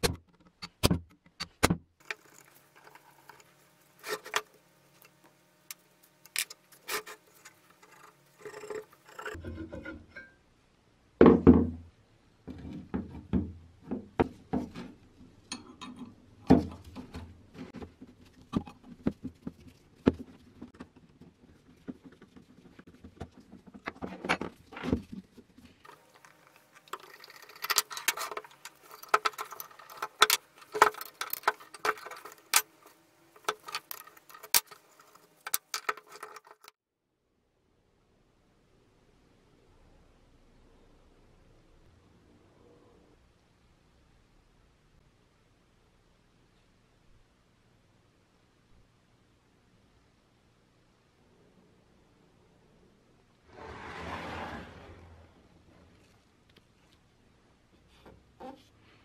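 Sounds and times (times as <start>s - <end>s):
metal parts clattering: 25.9s - 36.7s
metal parts clinking and knocking: 25.9s - 36.7s.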